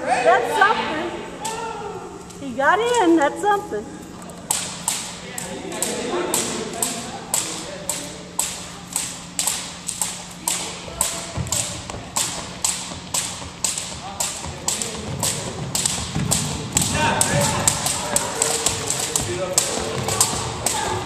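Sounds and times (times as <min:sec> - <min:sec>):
jump ropes slapping floor: 0:04.4 - 0:21.0.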